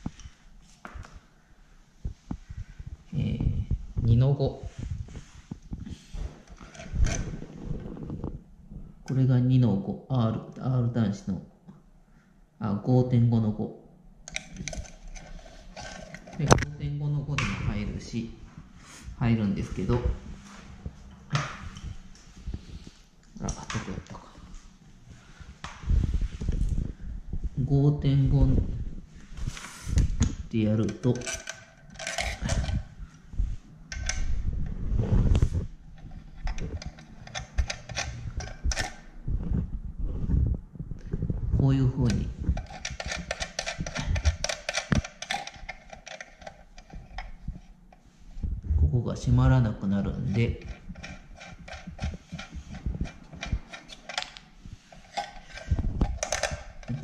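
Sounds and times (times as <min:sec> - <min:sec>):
small metal clicks and knocks: 0:14.2 - 0:16.7, 0:30.8 - 0:32.9, 0:36.0 - 0:39.1, 0:42.1 - 0:48.1, 0:50.3 - 0:57.0.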